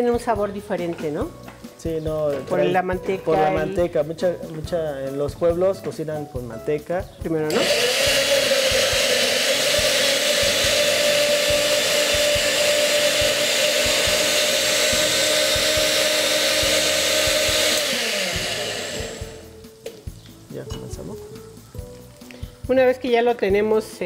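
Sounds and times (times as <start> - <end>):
blender motor running: 7.5 - 19.6.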